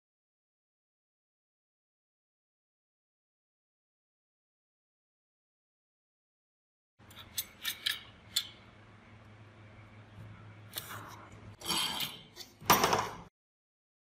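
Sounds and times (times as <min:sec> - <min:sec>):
small metal parts clicking on worktop: 0:07.0 - 0:08.6.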